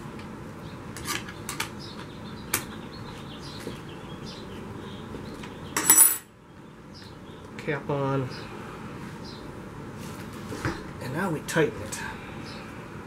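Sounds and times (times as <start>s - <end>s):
wrench clattering on tile floor: 5.8s - 6.3s.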